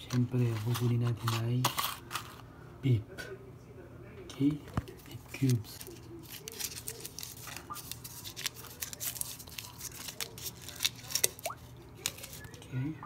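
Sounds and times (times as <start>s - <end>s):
foil wrapper crinkling and tearing: 5.0s - 12.7s.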